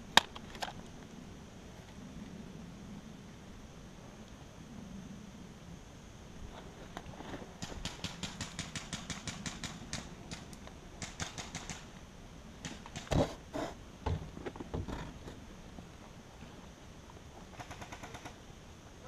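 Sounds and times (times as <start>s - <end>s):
airsoft gun rapid clicks: 7.6s - 11.9s, 12.6s - 13.2s, 17.6s - 18.4s.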